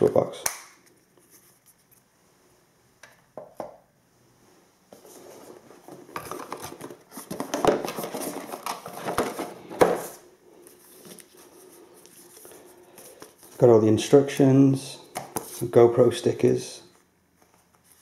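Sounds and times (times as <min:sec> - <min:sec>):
paper and cardboard rustling: 0:04.9 - 0:13.8.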